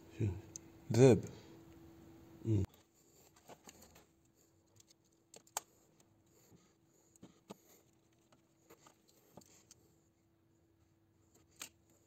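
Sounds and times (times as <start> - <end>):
clicks and rustles of wires: 2.7 - 6.3, 7.1 - 9.9, 11.3 - 12.0.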